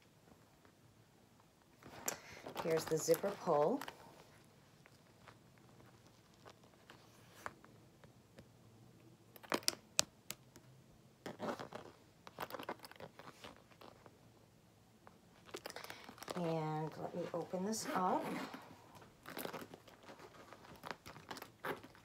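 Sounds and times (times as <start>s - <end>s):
handbag rustling: 1.8s - 7.6s, 11.2s - 14.1s, 15.3s - 22.0s.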